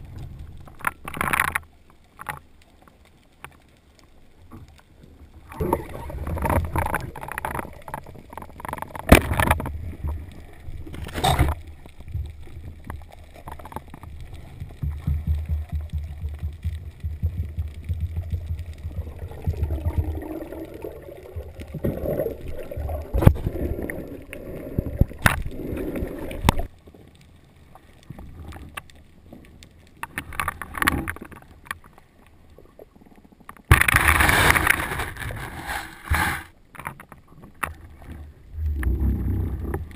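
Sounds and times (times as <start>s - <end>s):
muffled underwater rushing: 5.0s - 26.8s, 37.7s - 39.9s.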